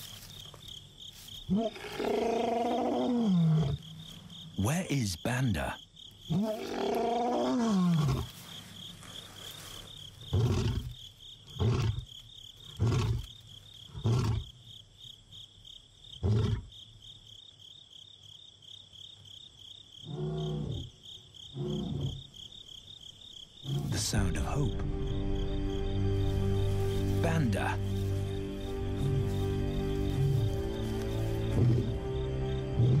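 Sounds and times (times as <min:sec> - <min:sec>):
crickets trilling: 0:00.0 - 0:33.0
lion roaring and grunting: 0:06.3 - 0:08.3, 0:10.3 - 0:12.1, 0:12.7 - 0:13.3, 0:21.5 - 0:22.2, 0:29.9 - 0:32.0, 0:32.8 - 0:33.0.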